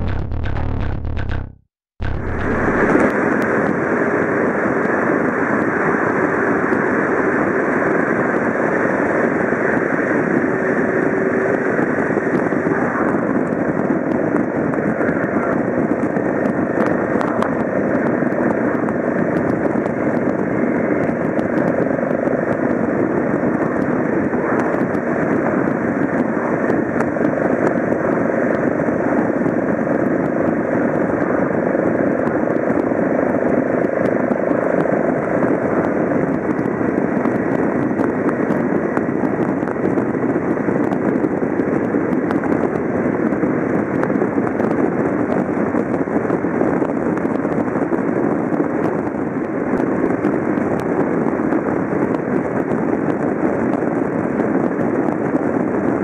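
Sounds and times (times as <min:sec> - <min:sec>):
motorcycle engine running: 0:00.0 - 0:03.1
wind noise: 0:00.0 - 0:56.0.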